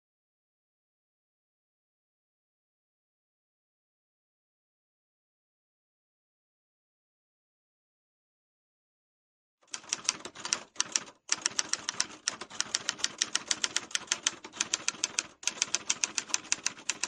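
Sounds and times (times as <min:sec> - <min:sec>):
typewriter keys clacking: 0:09.7 - 0:17.0.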